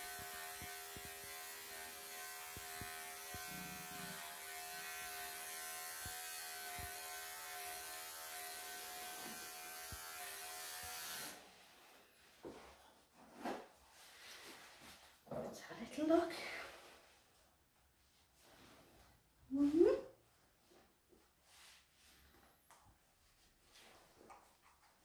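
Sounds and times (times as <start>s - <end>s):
electric clippers humming: 0.0s - 11.4s.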